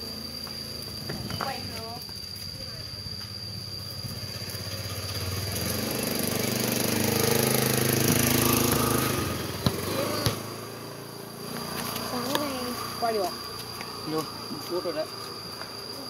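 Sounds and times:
motor scooter engine passing: 3.5s - 14.3s
football being kicked: 9.6s - 10.5s.

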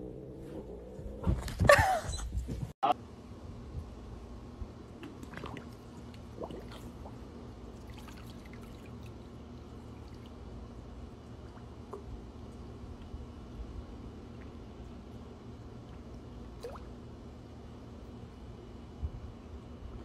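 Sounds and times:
steady low hum: 0.0s - 20.0s
water drips and splashes: 5.0s - 13.2s, 14.3s - 17.0s.

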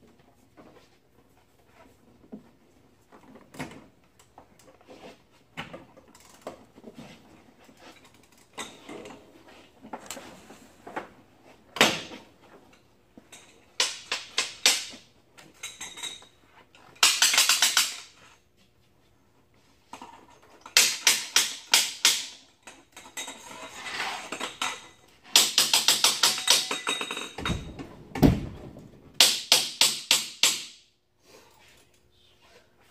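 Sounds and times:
tools clanking on metal: 22.6s - 27.9s.

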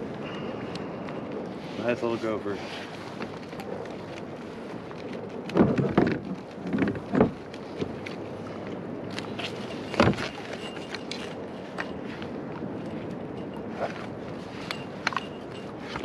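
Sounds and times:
wind and water hiss: 0.0s - 16.0s.

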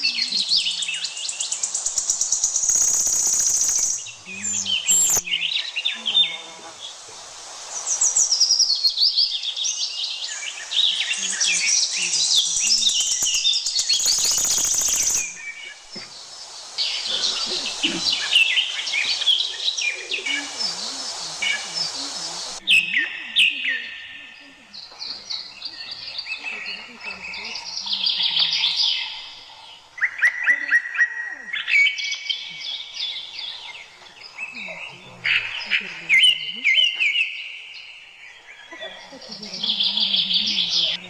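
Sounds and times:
rapid buzzing trills: 0.0s - 23.2s
birds chirping and whistling: 0.0s - 41.0s.

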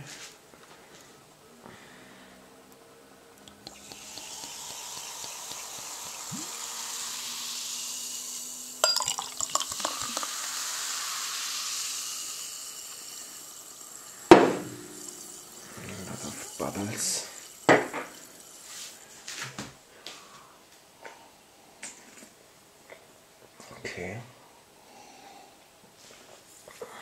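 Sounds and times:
soda fizzing while poured: 3.4s - 19.4s
glass clinks: 8.8s - 10.3s
bottle knocking on table: 14.3s - 15.2s.

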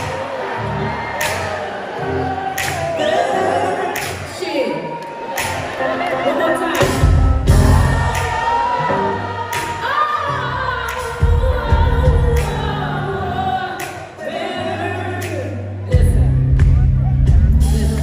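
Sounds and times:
live soul band: 5.4s - 18.0s.

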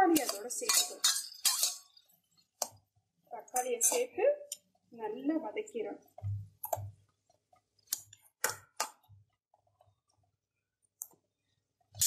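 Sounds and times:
metal spatula clinking on pan: 0.1s - 2.0s, 3.5s - 4.2s.

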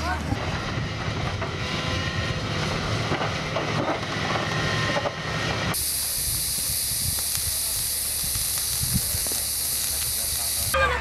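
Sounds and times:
steady high hiss: 5.8s - 10.8s.

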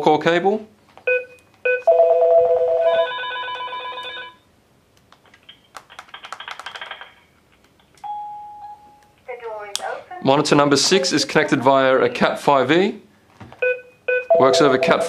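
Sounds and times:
keypad beep: 1.1s - 2.1s, 13.6s - 15.0s.

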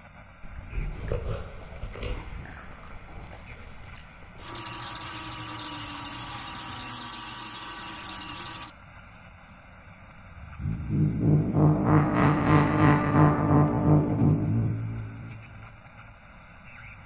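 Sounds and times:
tape rewind static hiss: 0.2s - 8.7s, 10.0s - 17.0s
faint whine: 9.6s - 17.0s
low rumble: 10.2s - 16.6s.

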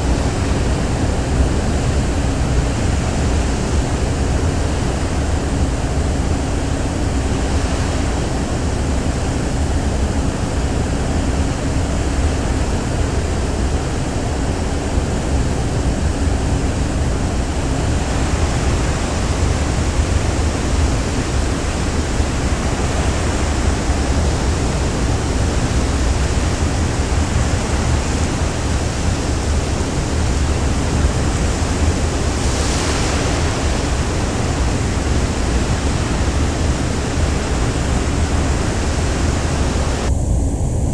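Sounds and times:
sea rushing: 0.0s - 40.1s
wind rushing: 16.1s - 40.9s.

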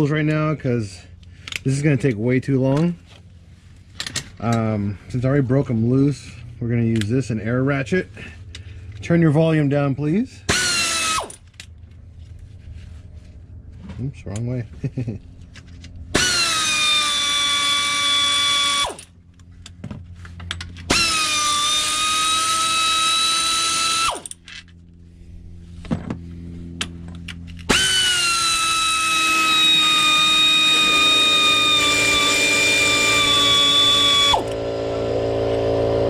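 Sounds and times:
low steady hum: 0.0s - 36.0s
air ratchet whining: 10.5s - 11.6s, 16.1s - 19.7s, 20.4s - 24.6s, 26.8s - 36.0s.

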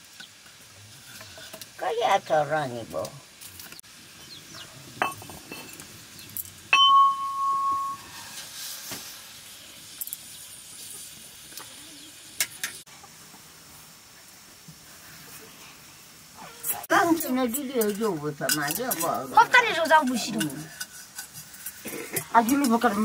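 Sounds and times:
steel utensils clinking on pot: 5.0s - 8.1s, 16.9s - 23.0s.

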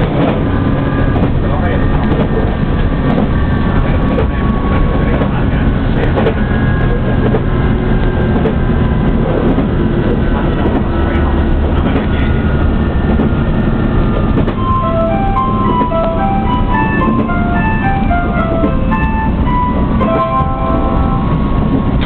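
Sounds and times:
clicks from rail joints: 0.0s - 0.5s, 6.0s - 12.2s
train engine and wheels rumble: 0.0s - 22.0s.

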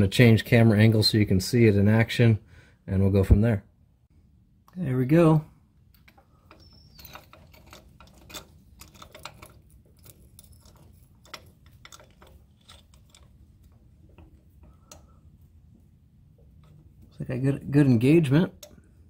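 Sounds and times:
faint metallic clicks and scrapes: 5.9s - 19.0s.

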